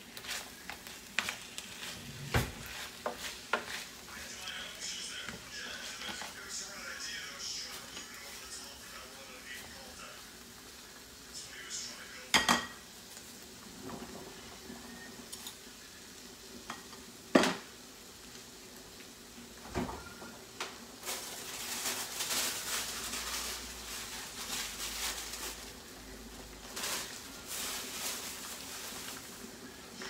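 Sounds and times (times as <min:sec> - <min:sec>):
pots bubbling and sizzling: 0:00.0 - 0:30.0.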